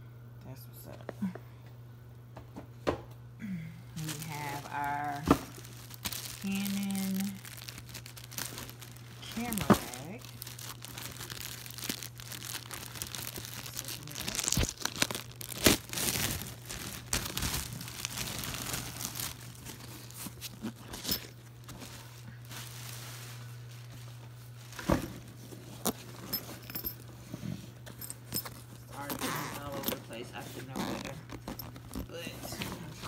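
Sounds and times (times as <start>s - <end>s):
plastic bag crinkling and tearing: 4.0s - 24.1s.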